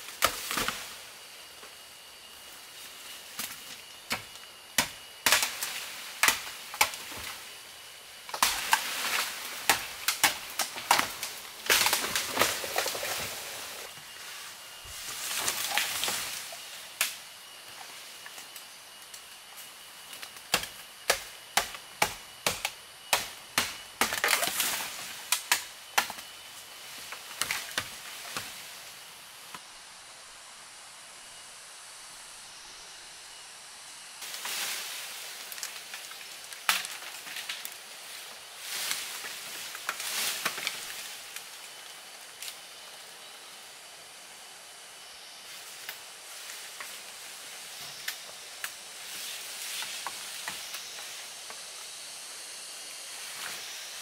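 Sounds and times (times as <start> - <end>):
rustling leaves and stems: 0.0 - 54.0
machete chopping bamboo: 4.1 - 7.4, 8.3 - 13.0, 20.5 - 26.3.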